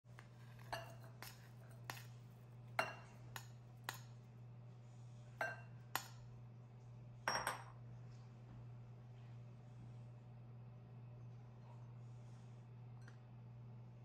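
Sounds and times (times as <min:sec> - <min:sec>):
low steady hum: 0:00.1 - 0:14.0
spatula clinking against glass bowl: 0:00.6 - 0:02.1, 0:02.8 - 0:04.1.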